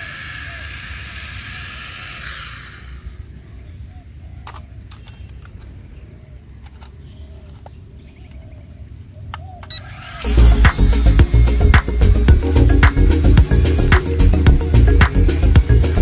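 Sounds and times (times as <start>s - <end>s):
toy drone motors whining: 0.0s - 3.4s, 9.6s - 16.0s.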